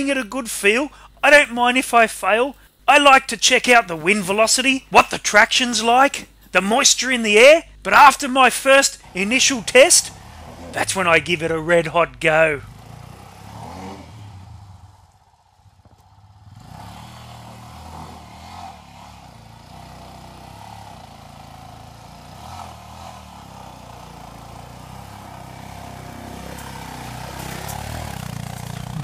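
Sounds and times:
motorcycle engine climbing: 8.6s - 29.0s.

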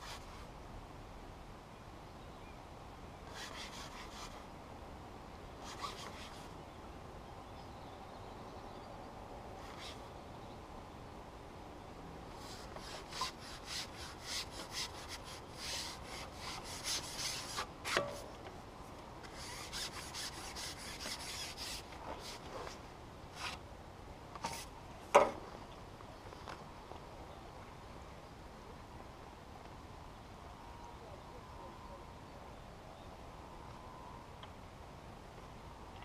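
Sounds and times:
fishing pole rasping through hands: 12.4s - 18.2s, 19.2s - 22.8s.

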